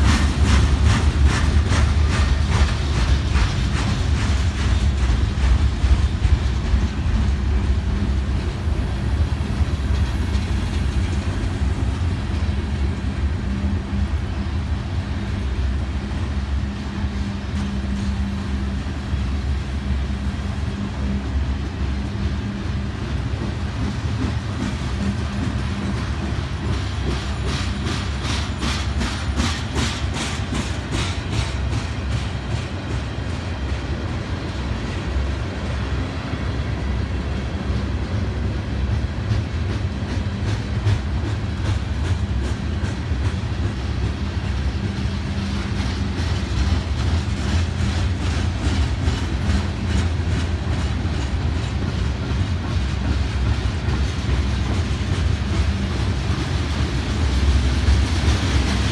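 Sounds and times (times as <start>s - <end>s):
steel wheels rumbling on rail: 0.0s - 58.9s.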